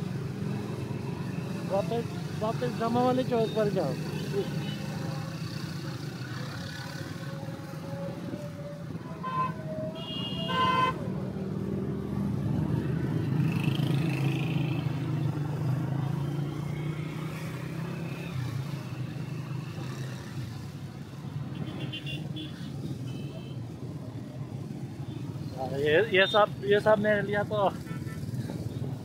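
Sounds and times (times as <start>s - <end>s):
vehicle horn honking: 9.2s - 11.0s.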